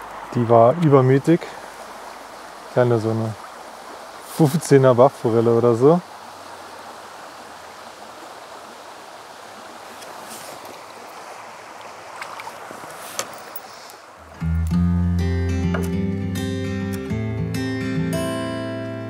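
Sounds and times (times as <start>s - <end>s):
stream flowing over gravel: 0.0s - 14.7s.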